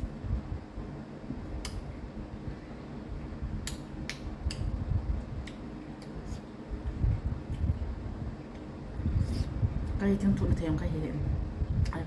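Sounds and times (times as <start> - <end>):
sharp mouth smacks: 1.6 - 1.8, 3.6 - 4.7, 5.4 - 6.2.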